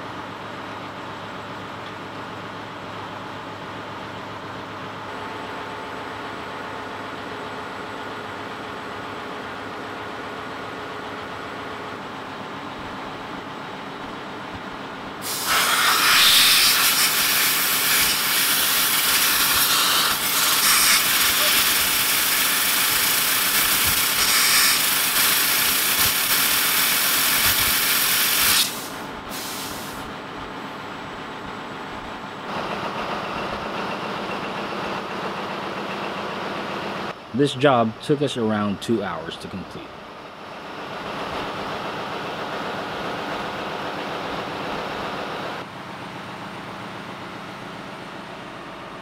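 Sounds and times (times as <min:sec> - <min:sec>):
engine room machinery hum: 0:00.0 - 0:49.0
compressed air hissing: 0:15.2 - 0:30.1.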